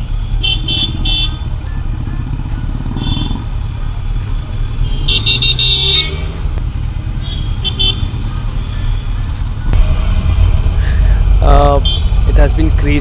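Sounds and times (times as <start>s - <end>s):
motorcycle engine: 0.0s - 13.0s
vehicle horn: 0.3s - 1.5s, 3.0s - 3.4s, 4.8s - 6.4s, 7.2s - 8.2s, 11.6s - 12.2s
wind rumble: 9.7s - 13.0s.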